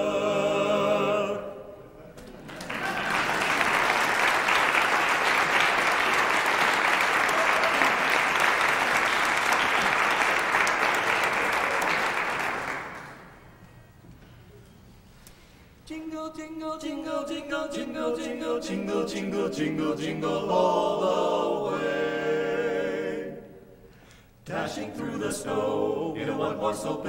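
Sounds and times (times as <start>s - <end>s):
applause: 2.4s - 13.4s.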